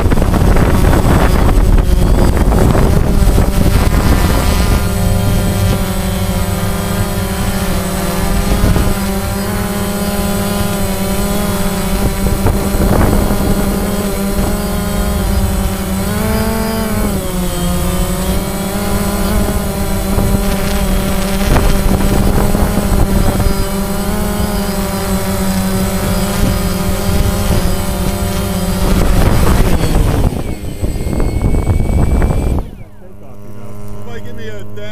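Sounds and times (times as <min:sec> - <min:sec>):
drone propellers buzzing whine: 0:00.0 - 0:34.9.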